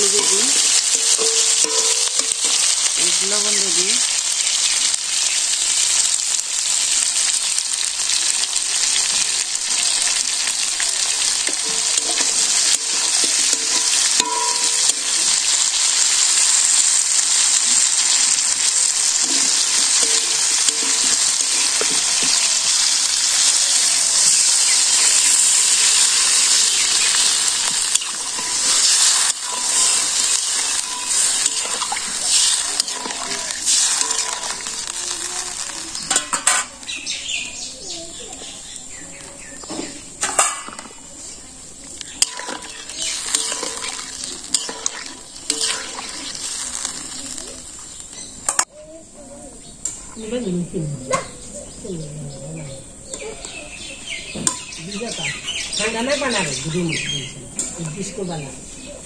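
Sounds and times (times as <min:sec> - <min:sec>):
metal spatula scraping a pan: 0:00.0 - 0:03.2, 0:11.4 - 0:15.6, 0:17.5 - 0:22.8, 0:24.4 - 0:35.0, 0:42.1 - 0:47.4
vegetables sizzling in hot oil: 0:00.0 - 0:48.9, 0:52.9 - 0:59.0.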